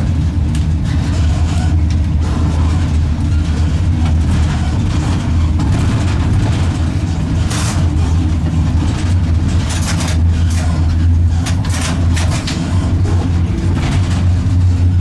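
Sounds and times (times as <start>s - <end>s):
locomotive low drone and rumble: 0.0s - 15.0s.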